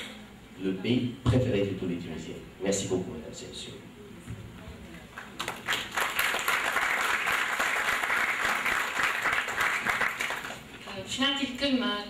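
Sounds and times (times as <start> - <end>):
audience applauding: 5.1 - 10.8.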